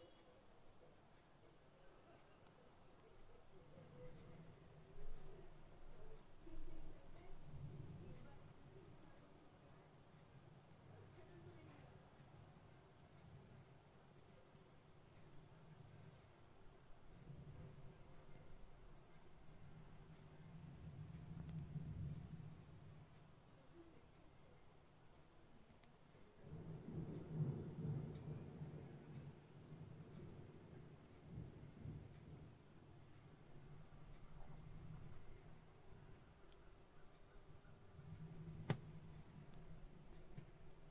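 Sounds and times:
crickets chirping: 0:00.0 - 0:40.9
soft low rumbles: 0:12.6 - 0:24.6, 0:26.1 - 0:40.9.

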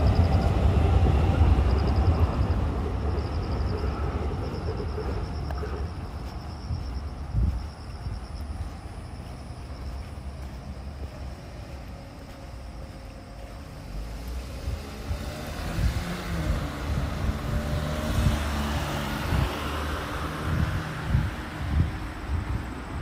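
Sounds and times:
car driving past: 0:10.4 - 0:22.4.

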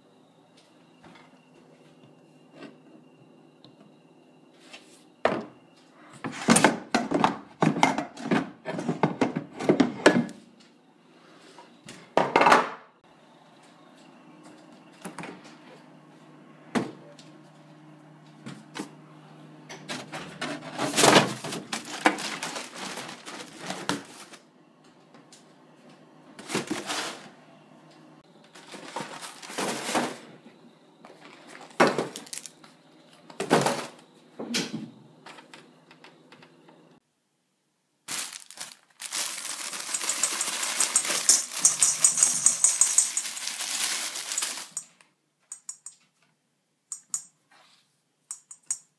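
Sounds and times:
dry mix poured into metal bowl: 0:38.3 - 0:45.0.

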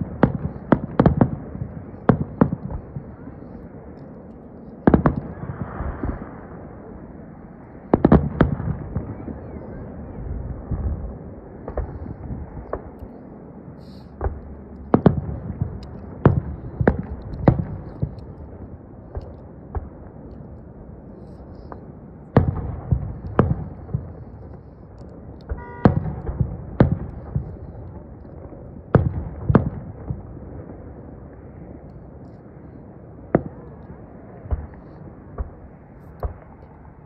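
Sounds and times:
low background noise: 0:00.0 - 0:37.0
firework shells bursting: 0:22.4 - 0:27.9.

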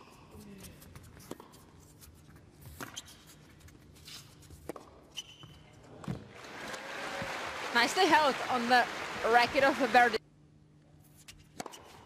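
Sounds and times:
shoe squeaks: 0:00.6 - 0:05.9.

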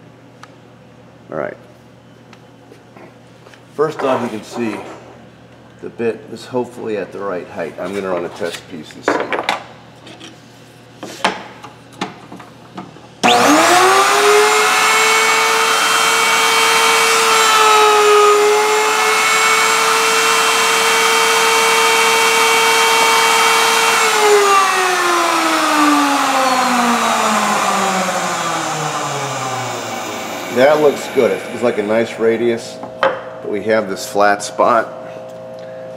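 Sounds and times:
router whining: 0:13.2 - 0:33.0.

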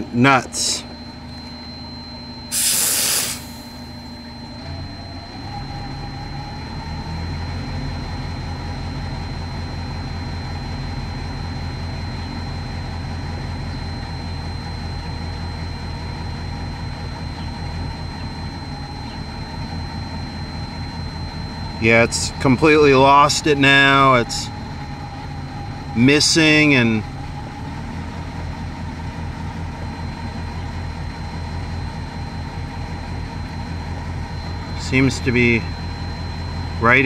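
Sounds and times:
engine running rough: 0:00.0 - 0:37.0
freeze spray hiss: 0:02.5 - 0:03.6.

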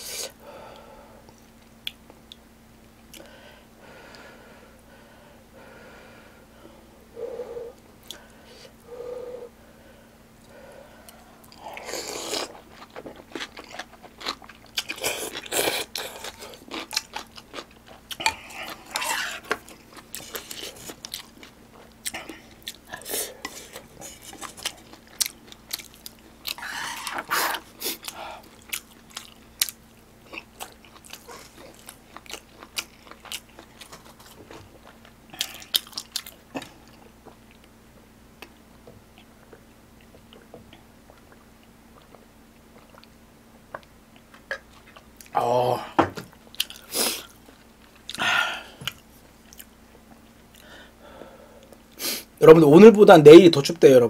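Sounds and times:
chewing and crunching food: 0:10.4 - 0:45.4, 0:46.2 - 0:50.9.

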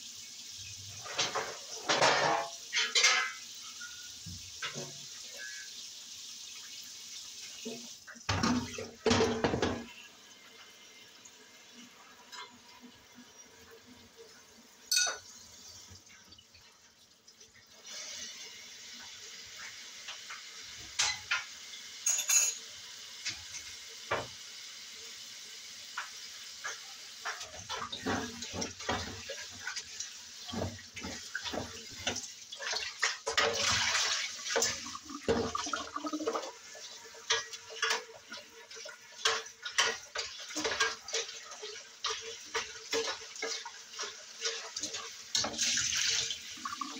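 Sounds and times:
water running into a steel sink: 0:00.0 - 0:46.9
dishes and cutlery clinking: 0:01.0 - 0:05.7, 0:07.7 - 0:09.9, 0:14.9 - 0:15.4, 0:20.3 - 0:23.4, 0:30.5 - 0:45.8.

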